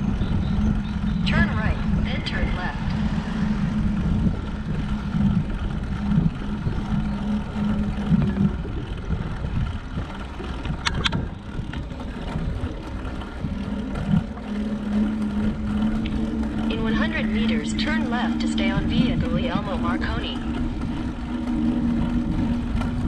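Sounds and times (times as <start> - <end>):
road noise: 0.0 - 23.0
wind on microphone: 0.0 - 23.0.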